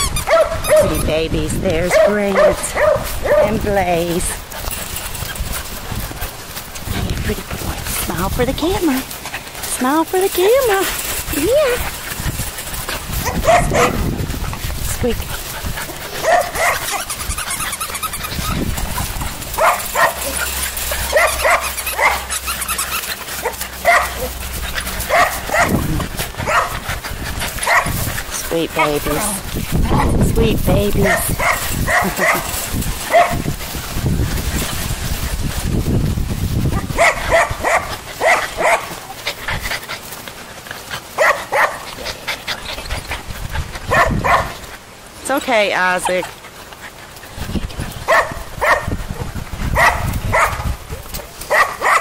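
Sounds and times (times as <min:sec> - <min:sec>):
squeaky dog toy squeaks: 0:00.0 - 0:01.1, 0:16.9 - 0:18.7, 0:21.1 - 0:23.1
puppies yipping: 0:00.0 - 0:07.4, 0:08.8 - 0:35.6, 0:36.7 - 0:45.0, 0:45.7 - 0:52.0.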